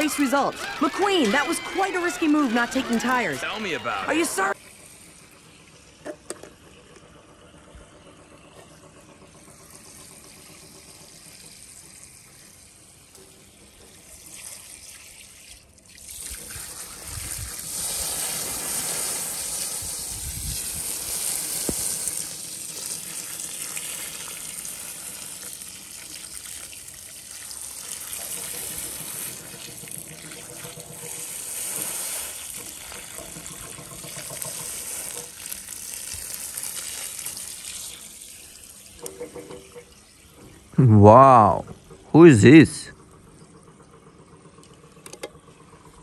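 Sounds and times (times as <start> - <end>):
water running and trickling: 0.0 - 3.3, 9.2 - 40.8.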